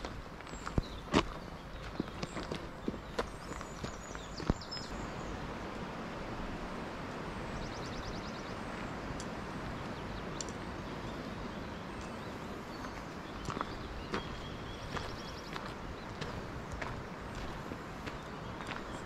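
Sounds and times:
faint clicks: 10.4s - 10.6s.

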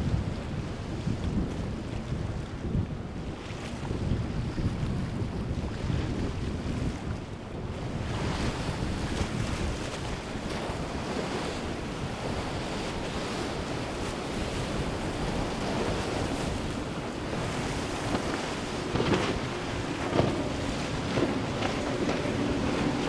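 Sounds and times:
faint hum of outboard boats: 0.0s - 23.0s
wind buffeting microphone: 0.0s - 23.0s
water rushing: 11.6s - 23.0s.

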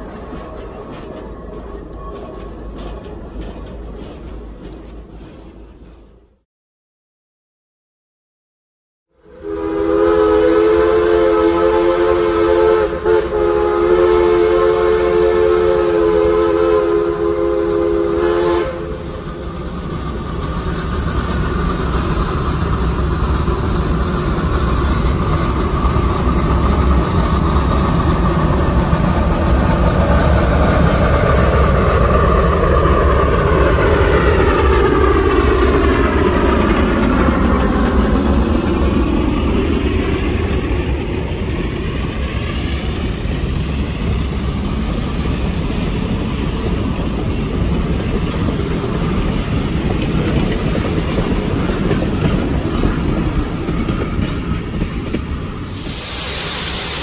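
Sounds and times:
steam locomotive working hard: 0.0s - 6.4s, 9.2s - 57.0s
steam whistle blasts: 9.2s - 19.1s, 55.7s - 57.0s.

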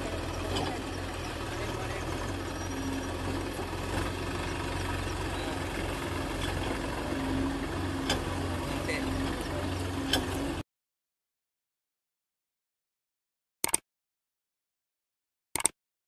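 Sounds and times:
diesel engines running at low revs: 0.0s - 10.6s
sharp metallic clicks: 13.6s - 13.8s, 15.6s - 15.8s.

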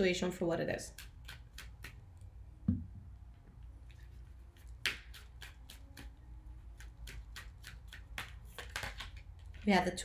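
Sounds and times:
cards thumping: 7.1s - 9.7s
cards rustling: 7.6s - 9.8s.

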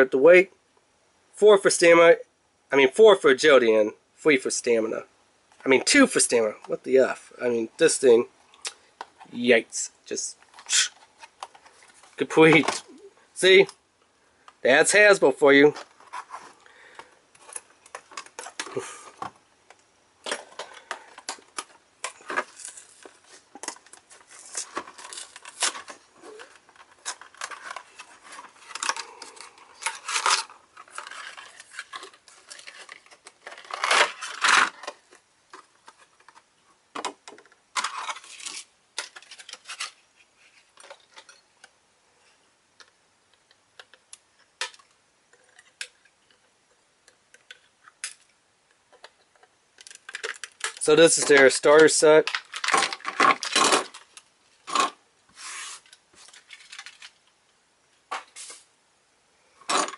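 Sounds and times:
stiff plastic crinkling: 20.2s - 36.4s, 49.0s - 57.2s.

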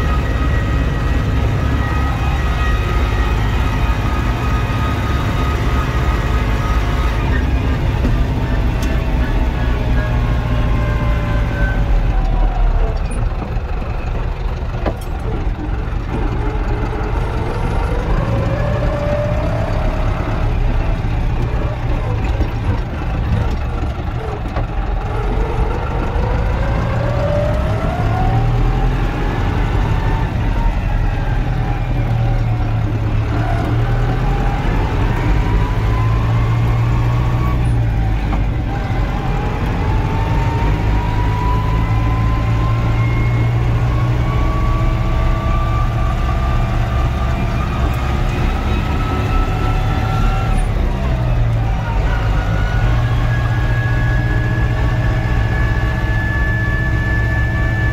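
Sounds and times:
rising whine: 0.0s - 12.6s, 25.3s - 57.9s
tractor diesel engine drone: 0.0s - 57.9s.

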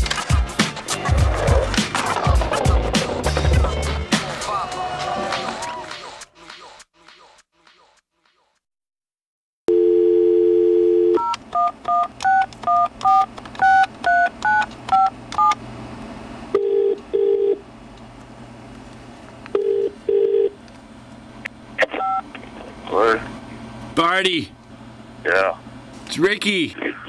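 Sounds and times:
telephone ringback tone: 9.7s - 11.7s, 16.6s - 17.6s, 19.6s - 20.6s
telephone dial tone: 9.7s - 15.6s, 19.5s - 20.6s
touch-tone digits dialing: 9.7s - 15.6s.

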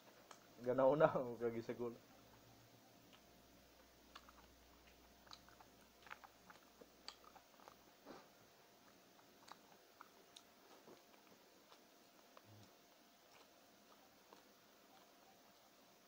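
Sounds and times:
chewing: 0.0s - 0.6s, 2.0s - 16.0s
soft mouth clicks: 3.8s - 8.0s.

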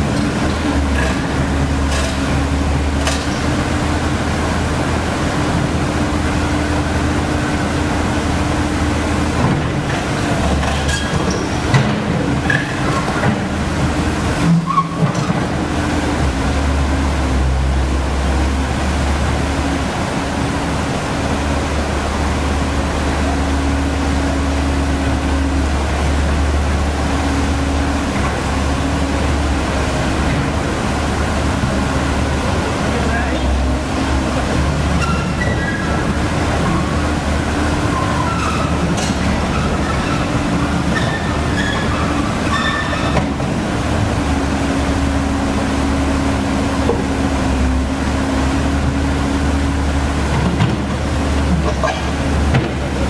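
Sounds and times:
excavator diesel engine running: 0.0s - 53.0s
knocks and clatters: 0.9s - 2.4s.

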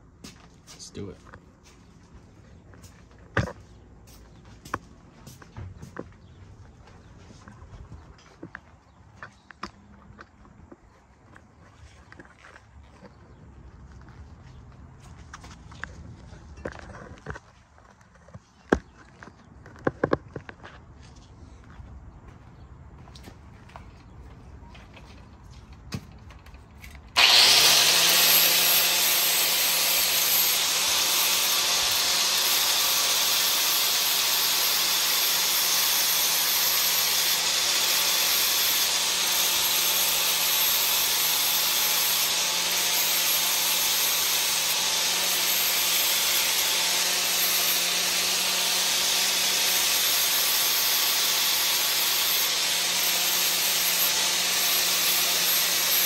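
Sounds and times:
angle grinder grinding steel: 27.2s - 56.0s.

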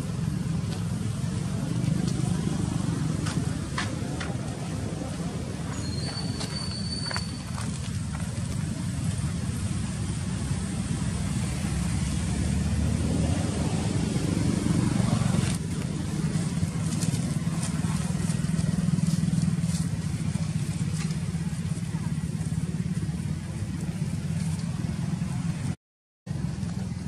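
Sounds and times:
motorbikes passing: 0.0s - 27.0s
road traffic: 0.0s - 27.0s.

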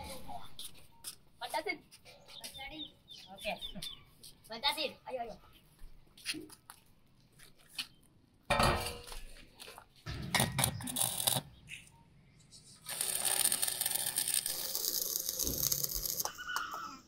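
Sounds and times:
steady hissing: 12.8s - 16.8s.

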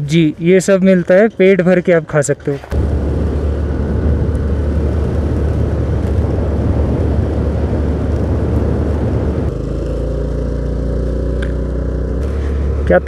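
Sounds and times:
scooter engine humming: 2.6s - 13.0s
wind rumble on microphone: 2.7s - 9.6s.

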